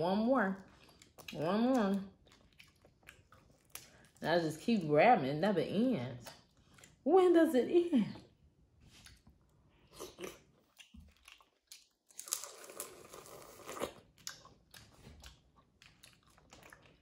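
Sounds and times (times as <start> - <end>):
crunching and chewing: 0.6 - 4.2, 6.2 - 7.0, 8.9 - 17.0.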